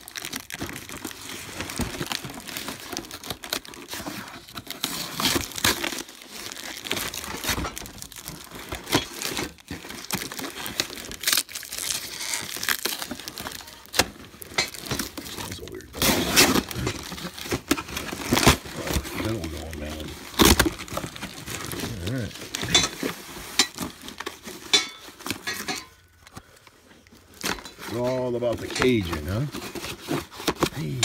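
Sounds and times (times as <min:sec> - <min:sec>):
plastic and cardboard crinkling: 0:00.0 - 0:31.0
parts knocking and scraping: 0:22.5 - 0:26.4.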